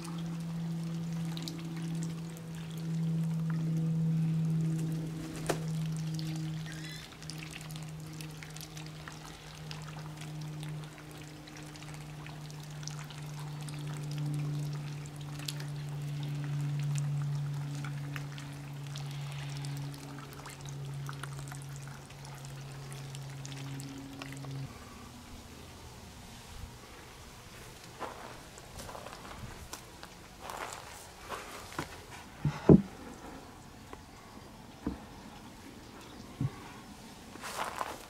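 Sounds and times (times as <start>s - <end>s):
water pouring and trickling: 0.0s - 32.4s, 37.2s - 38.0s
low steady hum: 0.0s - 38.0s
small splashes: 4.4s - 24.8s.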